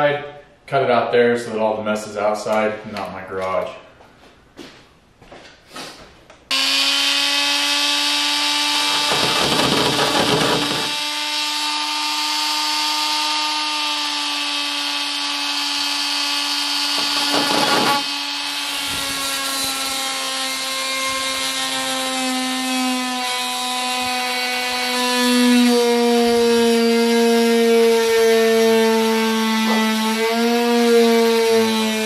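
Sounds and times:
reciprocating saw whining: 6.5 - 32.0.

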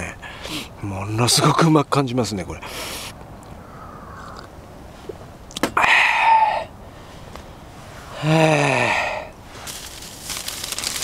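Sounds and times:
man sighing aah: 8.2 - 9.3.

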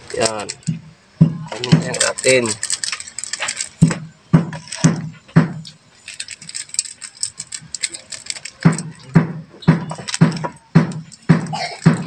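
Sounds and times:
peppercorns rattling into pot: 0.0 - 0.7, 1.5 - 5.0, 5.6 - 9.1
low thumps: 0.6 - 2.0, 3.8 - 5.7, 8.6 - 12.0.

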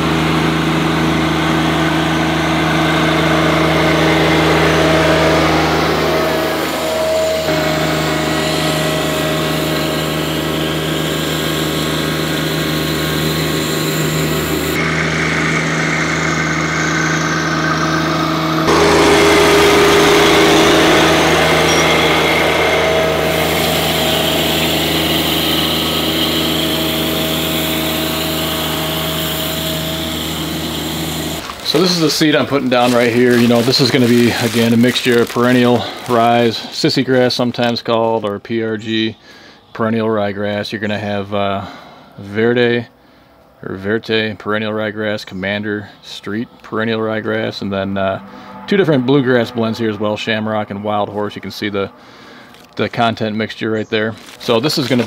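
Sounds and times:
tractor diesel engine running: 0.0 - 38.4, 54.0 - 55.0.

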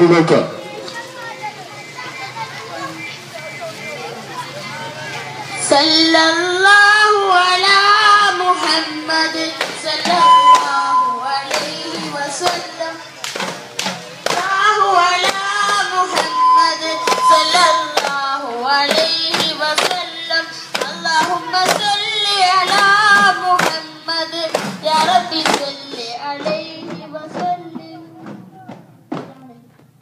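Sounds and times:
steady rhythmic beats: 0.0 - 30.0
voices singing devotional song: 0.1 - 29.7.

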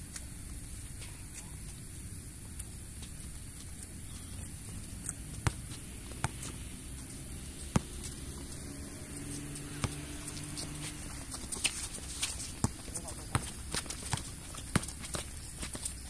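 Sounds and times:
steady high-pitched whine: 0.0 - 16.0
basketball bouncing on concrete: 5.3 - 16.0.

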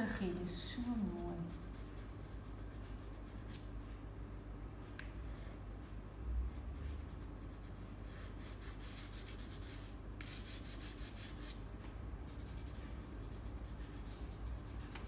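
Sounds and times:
pastel scratching on paper: 1.4 - 3.7, 6.8 - 11.6, 12.3 - 15.0.

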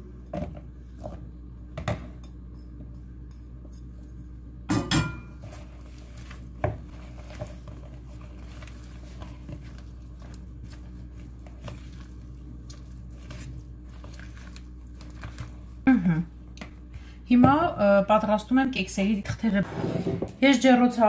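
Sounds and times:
spatula stirring thick batter: 5.4 - 15.8.

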